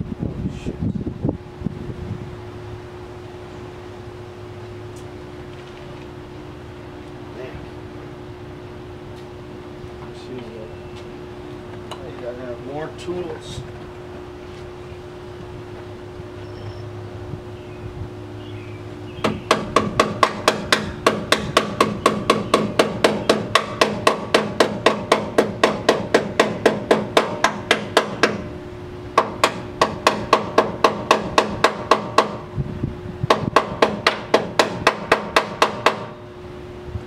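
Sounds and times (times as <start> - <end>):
hammer striking metal: 19.2 - 28.4.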